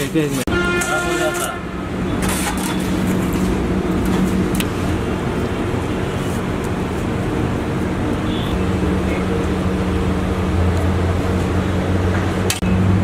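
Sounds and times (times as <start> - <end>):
mechanical drone humming: 3.0 - 13.0.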